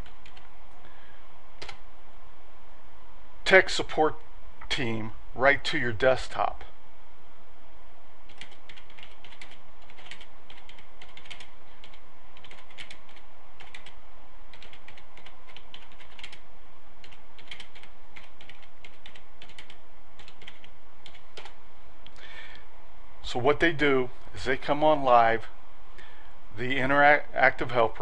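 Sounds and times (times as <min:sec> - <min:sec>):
typing on keyboard: 0:00.0 - 0:00.5, 0:01.6 - 0:01.8, 0:08.3 - 0:16.4, 0:17.0 - 0:21.6
steady low hum: 0:00.0 - 0:28.0.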